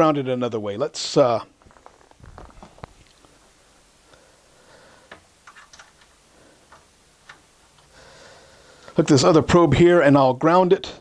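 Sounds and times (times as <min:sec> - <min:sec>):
probe leads clicking and handling: 0:05.1 - 0:08.0.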